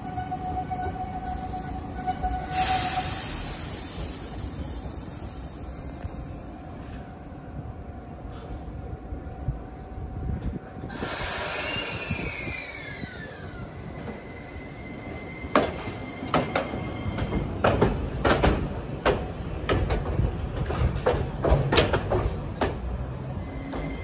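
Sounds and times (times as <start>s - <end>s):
tram moving slowly: 0.0s - 24.0s
wheels clacking over rail joints: 15.5s - 24.0s.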